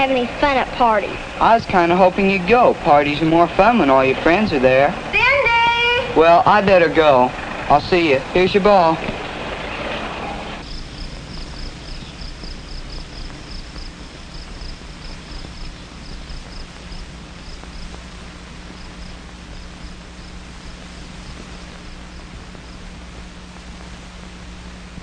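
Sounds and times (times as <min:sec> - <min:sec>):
film soundtrack hiss and hum: 0:00.0 - 0:25.0
crickets chirping: 0:10.6 - 0:24.4.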